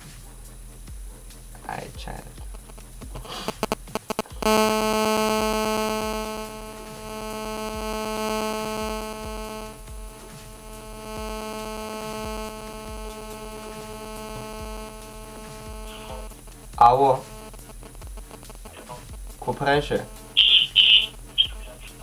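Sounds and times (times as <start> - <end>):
phone clicks: 2.6 - 9.3
electronic buzzing ringback tone: 3.4 - 18.8, 19.5 - 21.7.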